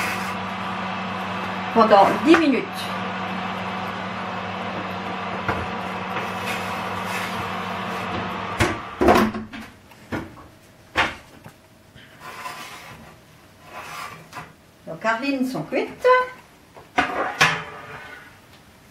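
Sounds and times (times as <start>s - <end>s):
steady hum: 0.0s - 12.2s.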